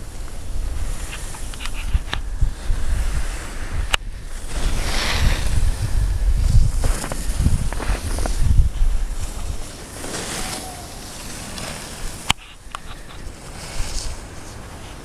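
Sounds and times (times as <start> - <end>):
skis hissing over snow: 0.0 - 15.0
wind buffeting microphone: 0.0 - 15.0.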